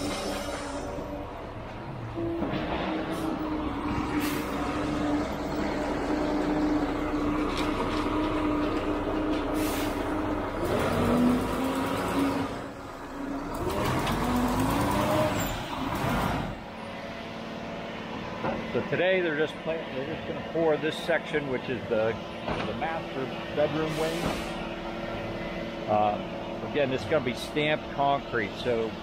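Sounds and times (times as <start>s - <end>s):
truck diesel engine: 0.0s - 29.0s
air hissing: 9.6s - 10.1s, 23.9s - 24.6s.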